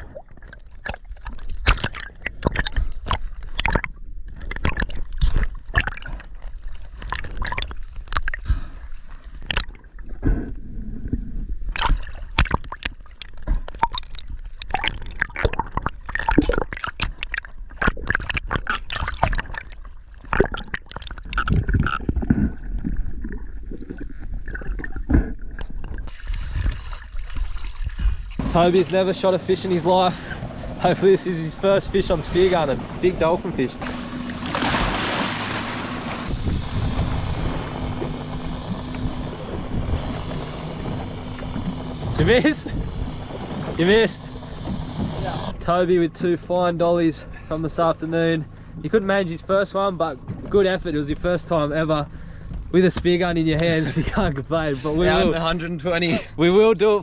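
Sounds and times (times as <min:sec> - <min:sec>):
sea water sloshing and splashing: 0:00.0 - 0:11.0, 0:11.6 - 0:45.3
muffled underwater rumble: 0:00.0 - 0:56.5.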